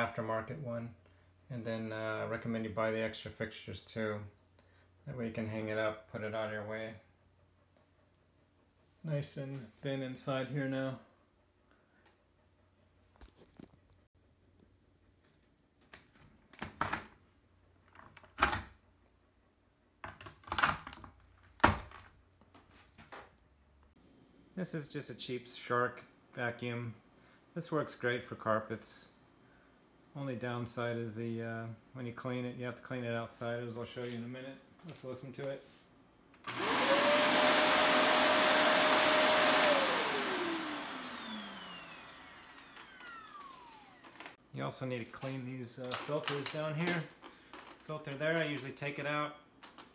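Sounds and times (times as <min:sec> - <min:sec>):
vacuum cleaner running: 0:36.4 - 0:44.4
vacuum motor winding down: 0:36.5 - 0:44.4.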